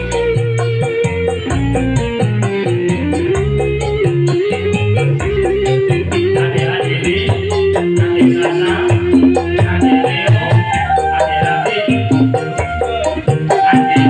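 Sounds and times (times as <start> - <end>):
hand drums: 0.0 - 14.0
keyboard playing bass and melody: 0.0 - 14.0
bamboo flute: 9.9 - 14.0.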